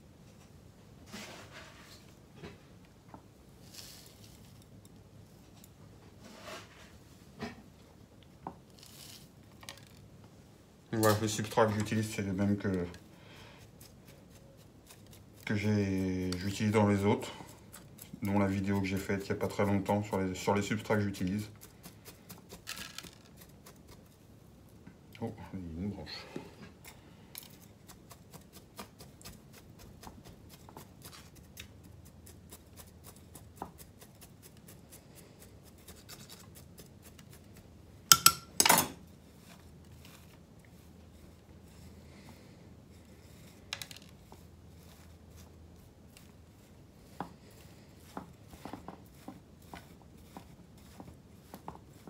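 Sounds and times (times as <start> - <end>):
chopstick scratching gritty soil: 11.0 - 24.3, 26.7 - 37.8, 39.0 - 52.0.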